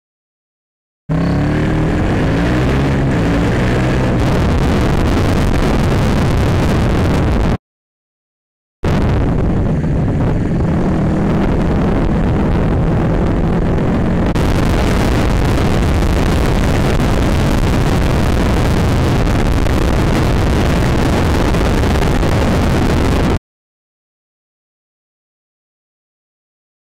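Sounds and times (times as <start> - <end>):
motorcycle engine running: 1.1 - 7.6, 8.9 - 23.4
wind rush on microphone: 1.2 - 7.6, 8.8 - 23.4.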